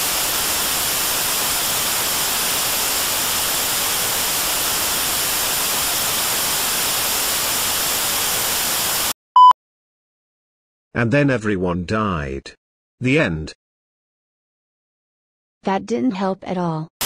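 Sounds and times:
static hiss: 0.0 - 9.2.

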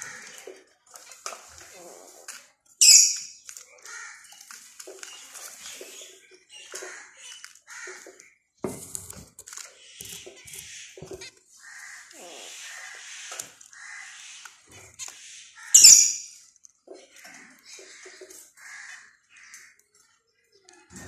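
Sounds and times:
finches chirping: 9.7 - 21.0.

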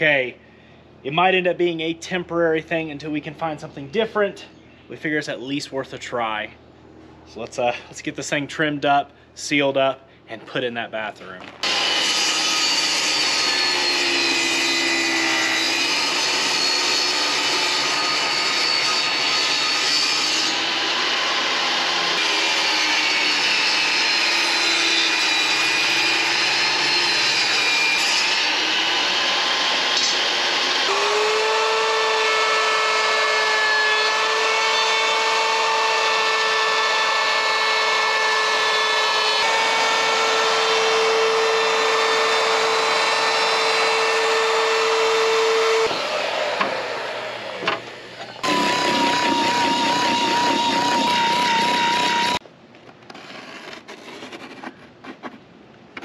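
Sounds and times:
router whining: 11.6 - 27.6, 28.3 - 52.4
table saw cutting wood: 11.6 - 52.4.

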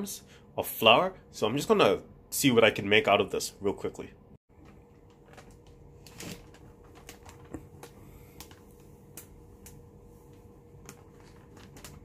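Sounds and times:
faint steady hum: 0.0 - 12.0
flour bag crinkling: 4.5 - 12.0.

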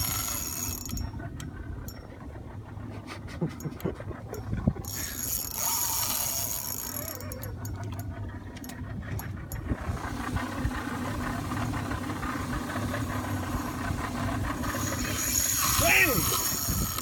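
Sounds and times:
boat engine running: 0.0 - 17.0
water noise: 0.0 - 17.0
wind noise: 13.8 - 17.0.

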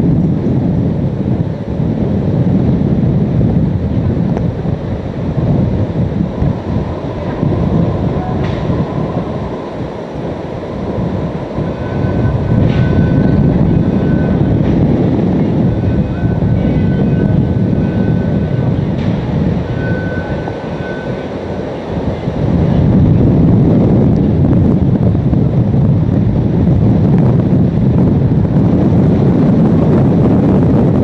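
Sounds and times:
strong wind on microphone: 0.0 - 31.0
faint high whistle: 19.8 - 21.2.

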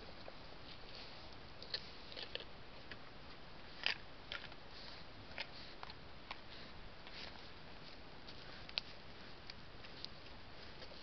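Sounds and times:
deer crunching apples: 1.6 - 3.0.

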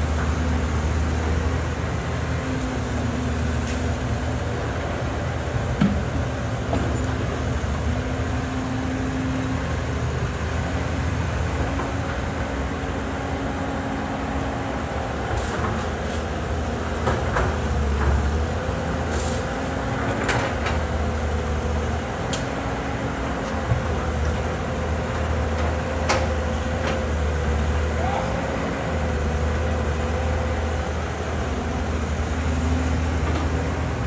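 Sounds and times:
excavator diesel engine running: 0.0 - 34.0.

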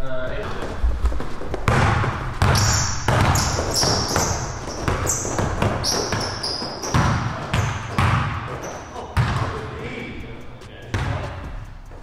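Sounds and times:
sneakers squeaking on wood: 0.5 - 9.6
basketball bouncing on hardwood: 1.6 - 8.6, 9.2 - 9.6, 10.9 - 11.6.

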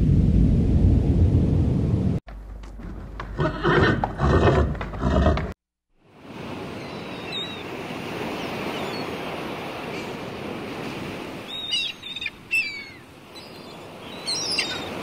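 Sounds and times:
deep rumble: 0.0 - 5.0
horse whinnying: 3.3 - 5.5
sea waves washing: 6.1 - 15.0.

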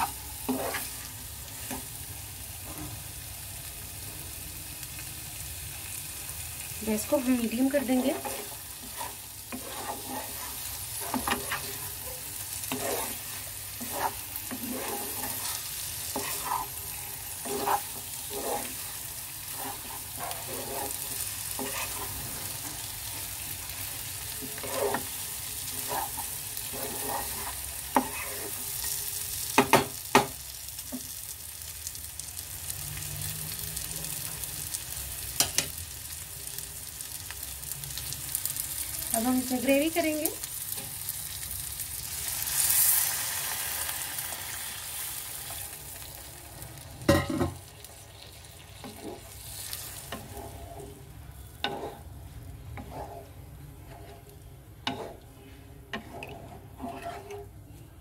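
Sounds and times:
wooden spatula stirring and scraping: 0.0 - 1.9, 6.8 - 29.0, 47.8 - 57.6
food sizzling in a pan: 0.0 - 57.6.

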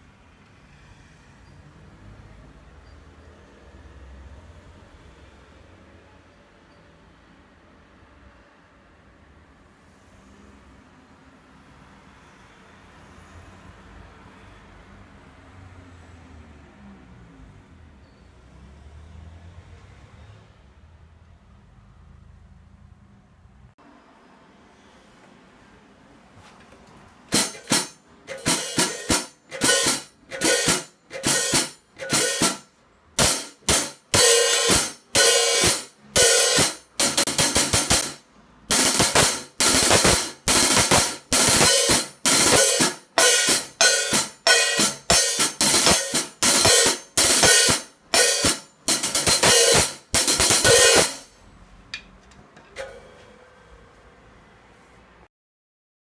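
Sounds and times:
hi-hat played with drumsticks: 27.3 - 51.3.

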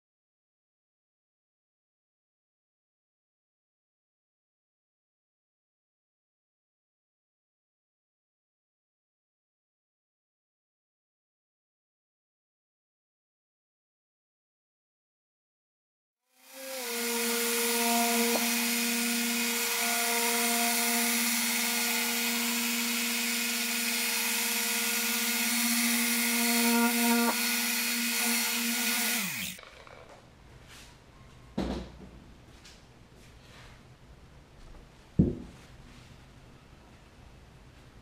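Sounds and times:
car polisher motor humming: 16.4 - 29.6
thump: 31.6 - 32.2, 35.2 - 35.6.

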